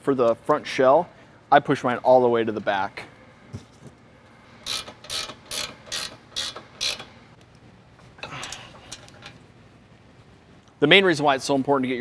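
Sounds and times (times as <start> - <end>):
ratcheting wrench clicking: 4.6 - 7.2, 8.2 - 9.4.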